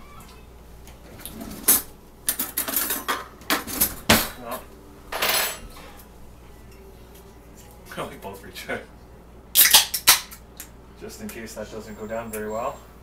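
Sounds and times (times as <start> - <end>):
cutlery clinking and scraping plate: 5.2 - 6.1.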